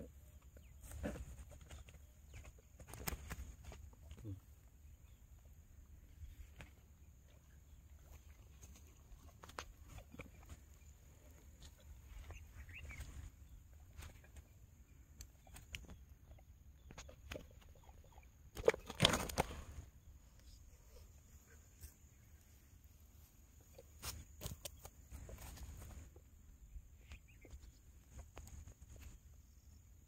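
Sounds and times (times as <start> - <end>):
small clicks and rustles: 0.4 - 4.3.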